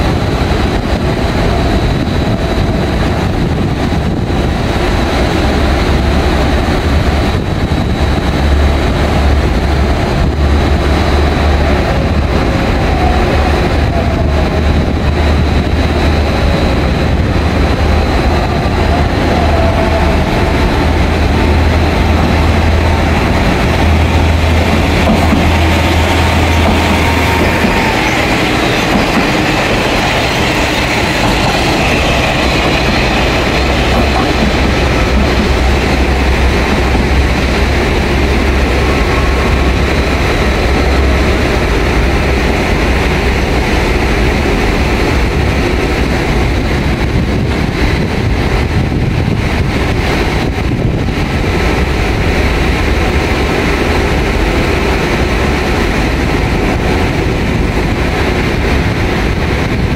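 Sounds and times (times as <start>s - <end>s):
diesel railcar engine rumble: 0.0s - 59.9s
steady background rush: 0.0s - 59.9s
wheels clattering on rails: 0.0s - 59.9s.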